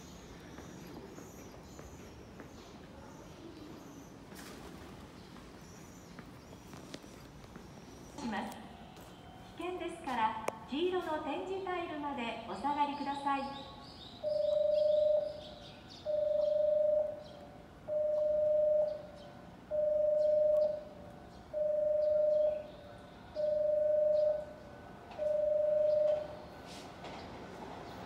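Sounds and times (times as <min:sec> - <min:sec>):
platform warning beep: 0:14.2 - 0:15.5, 0:16.1 - 0:26.4.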